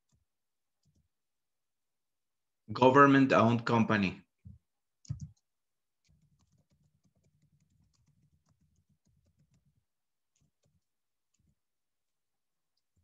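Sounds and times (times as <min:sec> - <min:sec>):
faint keyboard typing: 0:00.0 - 0:01.1, 0:04.4 - 0:11.7.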